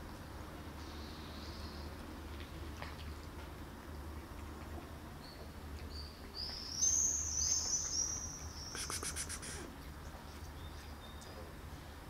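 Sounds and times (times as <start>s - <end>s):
small bird chirping: 5.2s - 9.4s.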